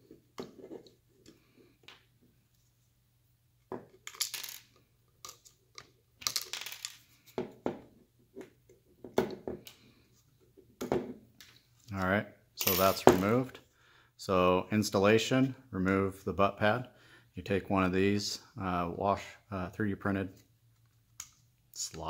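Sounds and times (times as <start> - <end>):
small parts clattering: 3.7 - 7.5.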